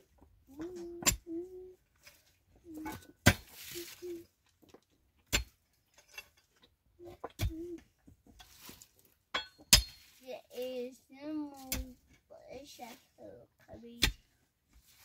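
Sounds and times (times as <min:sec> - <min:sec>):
pickaxe striking stony soil: 0:03.2 - 0:03.7, 0:05.3 - 0:05.6, 0:09.4 - 0:10.1.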